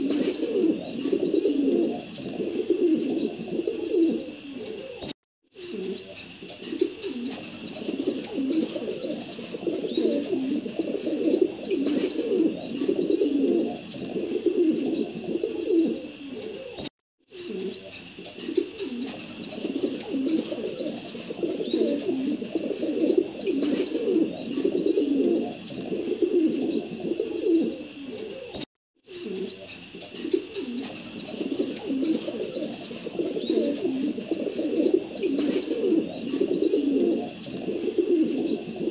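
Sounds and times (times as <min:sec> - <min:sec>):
pigeons cooing: 0:00.0 - 0:38.9.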